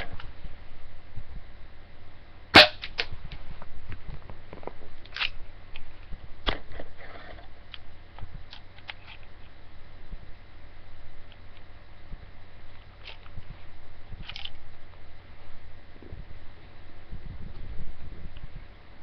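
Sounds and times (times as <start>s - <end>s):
air pistol shot: 2.6s - 3.1s
gun handling clicks and knocks: 14.2s - 14.6s.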